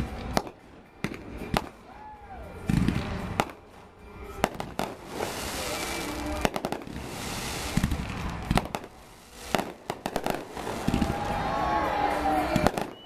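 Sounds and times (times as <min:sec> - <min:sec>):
fireworks crackling and hiss: 0:02.6 - 0:13.0
firework shells bursting: 0:04.4 - 0:11.5, 0:12.4 - 0:13.0.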